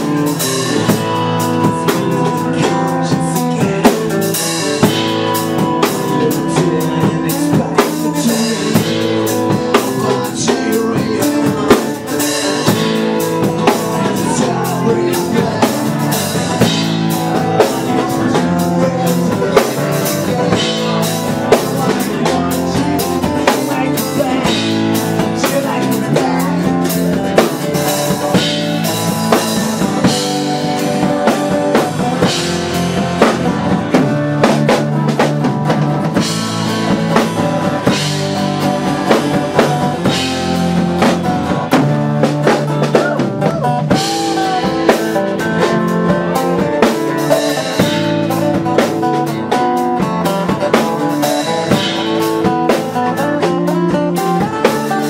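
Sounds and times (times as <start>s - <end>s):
person singing into microphone: 0.0s - 34.5s, 42.7s - 48.8s
drums hitting: 0.0s - 55.0s
strummed amplified acoustic guitars: 0.0s - 55.0s.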